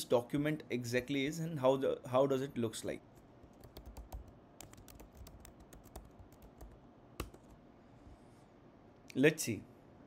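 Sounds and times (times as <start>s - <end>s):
typing on computer keyboard: 3.5s - 7.6s.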